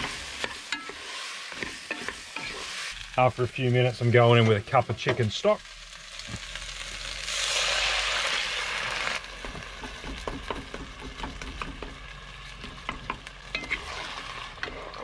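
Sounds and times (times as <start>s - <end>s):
wooden spoon scraping a pot: 0.0s - 3.0s, 12.6s - 15.0s
quiet sizzle: 0.0s - 15.0s
stock poured into hot pot hissing: 5.5s - 9.3s.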